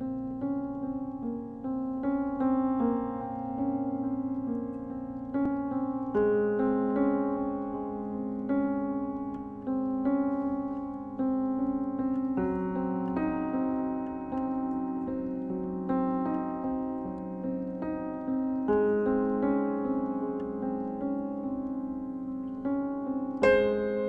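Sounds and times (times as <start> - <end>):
slow solo piano: 0.0 - 24.0.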